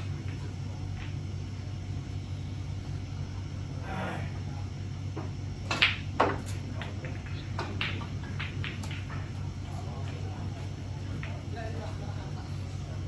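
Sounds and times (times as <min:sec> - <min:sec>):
snooker balls clicking: 0:00.0 - 0:01.2, 0:05.6 - 0:10.3, 0:11.0 - 0:11.5
steady low hum: 0:00.0 - 0:13.0.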